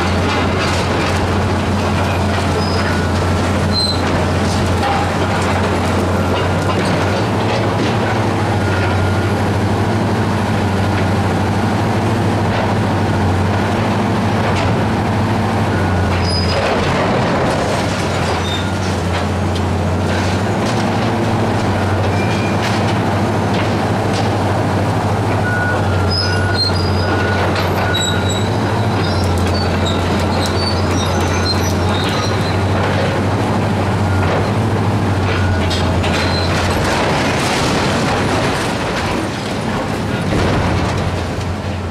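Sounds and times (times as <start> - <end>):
diesel engine running under load: 0.0 - 41.9
metal creaks and clanks: 0.1 - 8.1, 25.4 - 33.3, 34.0 - 41.5
high-pitched metal squeals: 2.6 - 4.1, 25.9 - 32.8.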